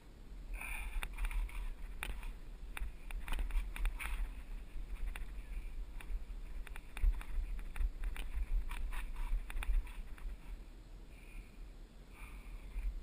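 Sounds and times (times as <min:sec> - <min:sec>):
bike rolling on dirt rumble: 0:00.6 - 0:10.7
bike rattling over bumps: 0:01.0 - 0:10.6.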